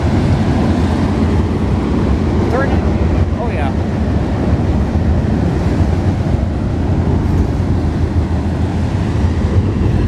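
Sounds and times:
train rumbling past: 0.0 - 10.0.

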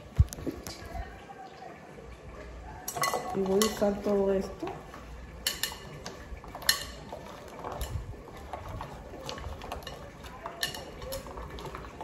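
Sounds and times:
utensil scraping and tapping a dish: 2.9 - 12.0.

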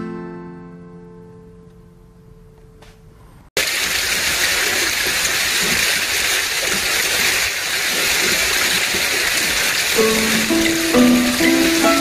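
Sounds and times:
rain on a nylon tarp: 3.6 - 12.0.

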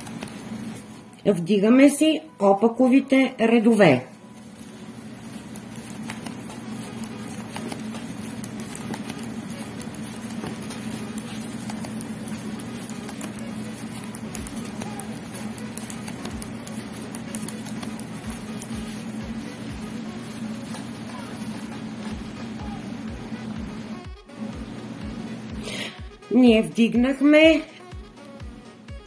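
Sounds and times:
steady low hum: 0.0 - 29.0
yarn rustling: 3.7 - 23.6.

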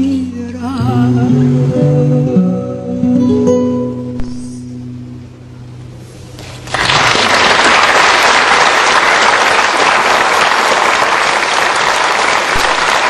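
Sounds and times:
guitar and vocal note: 0.0 - 5.2
audience applause: 6.6 - 13.0.

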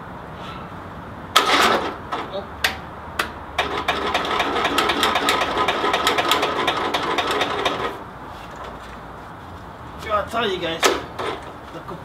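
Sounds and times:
electric starter cranking engine: 1.4 - 2.3, 3.6 - 8.0, 10.8 - 11.5.

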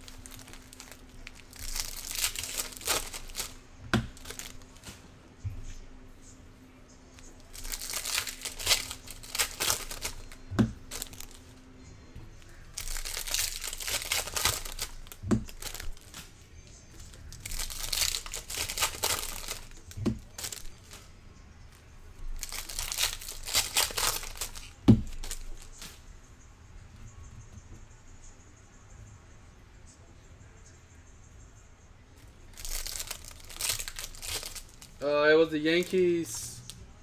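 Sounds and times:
foil wrappers tearing and crinkling: 0.0 - 4.9, 7.4 - 11.5, 12.5 - 16.3, 17.0 - 21.0, 22.3 - 25.8, 32.6 - 36.4.

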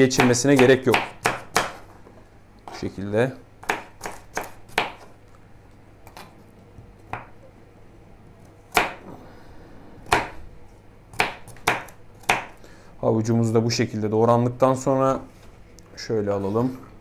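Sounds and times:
knife chopping on wooden board: 0.1 - 1.9, 3.6 - 5.1, 7.1 - 7.3, 8.7 - 9.0, 10.0 - 10.4, 11.1 - 12.6.

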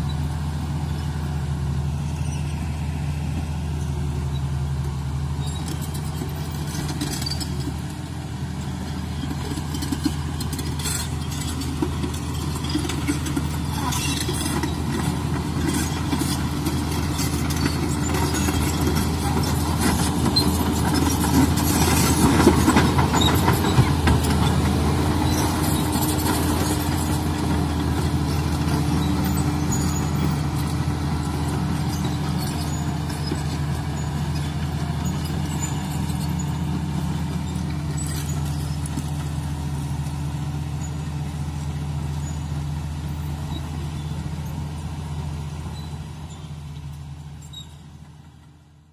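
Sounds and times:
bulldozer diesel engine under load: 0.0 - 48.9.

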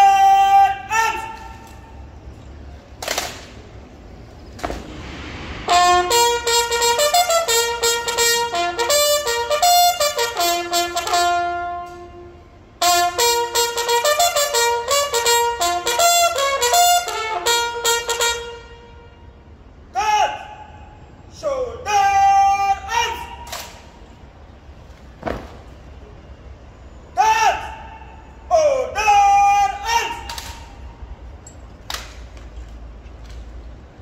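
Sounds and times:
bugle call: 0.0 - 2.3, 5.7 - 24.0, 27.1 - 31.1
sharp crack: 2.9 - 3.8, 4.5 - 6.2, 23.4 - 24.0, 30.1 - 30.8, 31.8 - 32.6.

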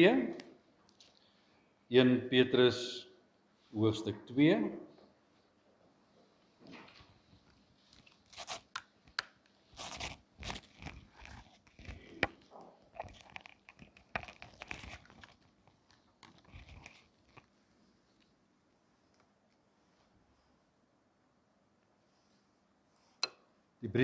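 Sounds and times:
thin paper pages rustling: 9.7 - 12.4, 13.0 - 17.5.

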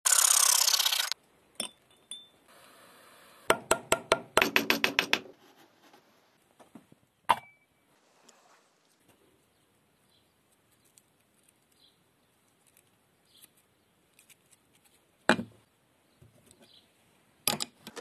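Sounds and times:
small metallic clinks: 1.6 - 2.4.

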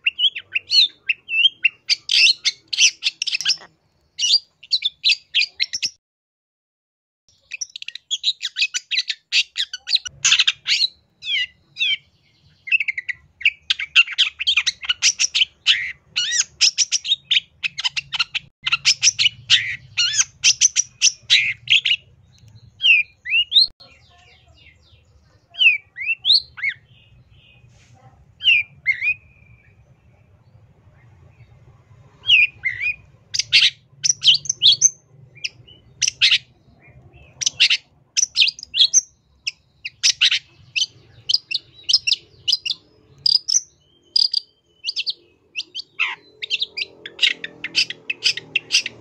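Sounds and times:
bird harsh chattering: 0.0 - 5.9, 7.4 - 12.1, 12.7 - 22.1, 32.2 - 49.0.

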